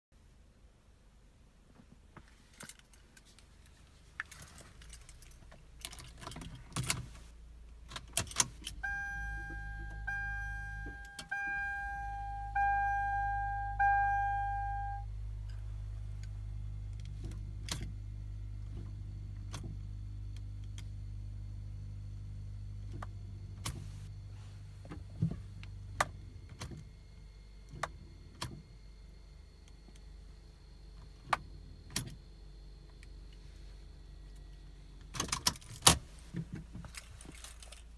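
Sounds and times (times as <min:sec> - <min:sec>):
steady low hum: 0:03.2 - 0:37.9
car warning chime: 0:08.7 - 0:16.9
keys jangling: 0:36.9 - 0:37.9.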